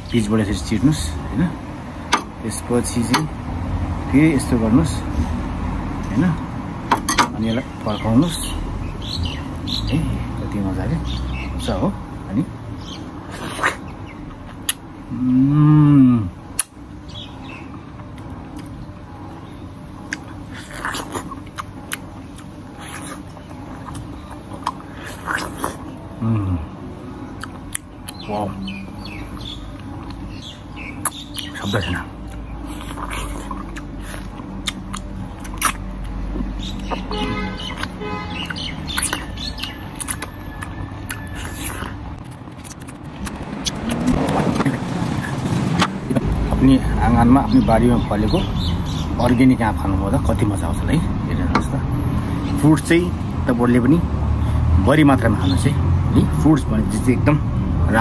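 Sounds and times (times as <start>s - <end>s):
person eating mango: 13.3s - 16.8s, 18.1s - 18.8s, 20.1s - 28.8s, 32.2s - 46.6s
person eating wet lip-smacking: 27.4s - 28.2s, 32.3s - 36.2s, 37.8s - 44.4s.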